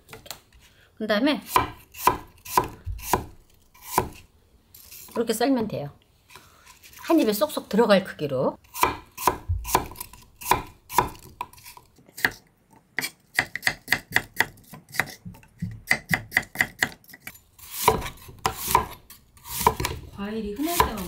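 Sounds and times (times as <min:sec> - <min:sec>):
knife chopping on cutting board: 0:01.5 - 0:04.2, 0:08.7 - 0:11.5, 0:13.0 - 0:20.0, 0:20.6 - 0:21.0.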